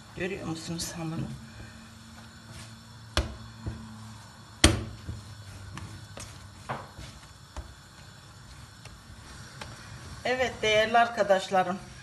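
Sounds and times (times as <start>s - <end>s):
dough thumping and slapping: 1.2s - 9.8s.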